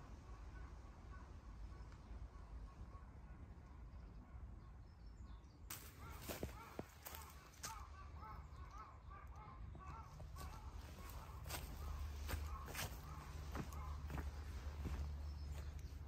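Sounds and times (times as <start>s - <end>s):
footsteps on dry leaves: 5.7s - 7.9s, 10.1s - 16.0s
bird calling in repeated notes: 5.7s - 16.0s.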